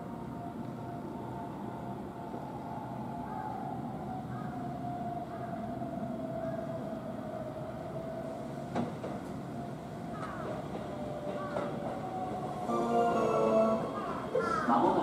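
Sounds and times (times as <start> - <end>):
electric train whine: 0.0 - 15.0
train running rumble: 7.1 - 15.0.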